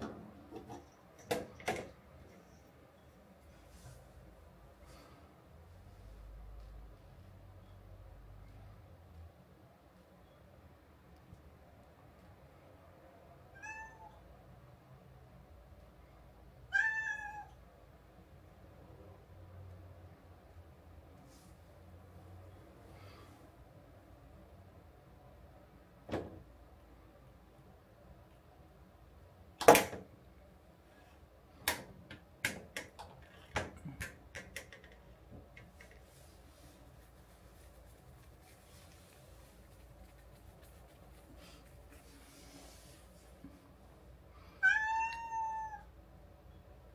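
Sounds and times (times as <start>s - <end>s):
cat meowing: 13.5s - 14.2s, 16.7s - 17.6s, 44.6s - 45.9s.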